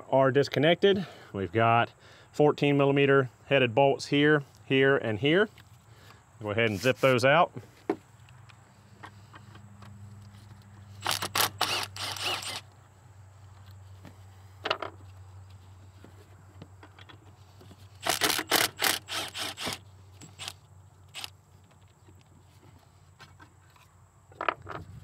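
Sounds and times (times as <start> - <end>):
cordless power tool clicking: 11.0 - 12.7, 18.0 - 21.3.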